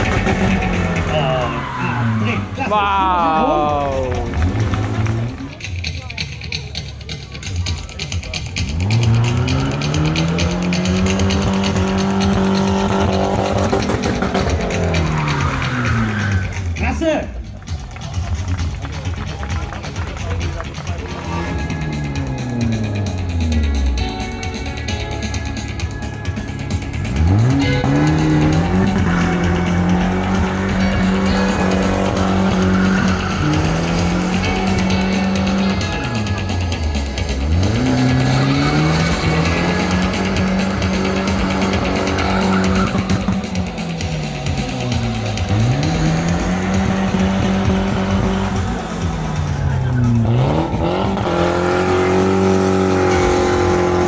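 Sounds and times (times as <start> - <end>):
music playing: 0.0 - 54.0
engine revving hard: 8.6 - 16.6, 26.9 - 54.0
tyre squeal: 41.9 - 43.4.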